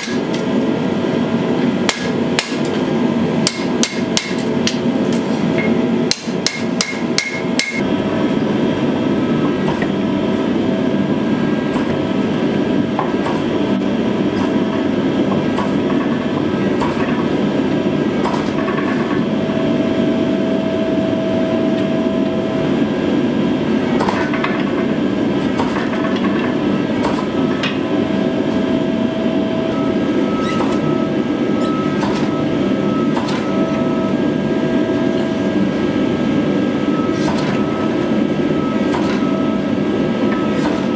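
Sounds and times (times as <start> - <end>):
hydraulic press droning: 8.9 - 40.9.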